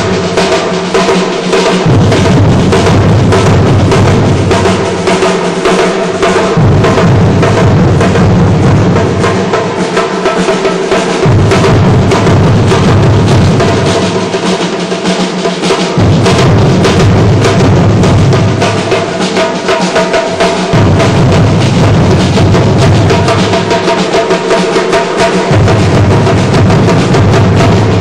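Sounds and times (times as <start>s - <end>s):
samba drumming: 0.0s - 28.0s
deep bass drum: 1.8s - 5.0s, 6.4s - 9.6s, 11.2s - 14.0s, 16.0s - 19.0s, 20.6s - 23.7s, 25.4s - 28.0s.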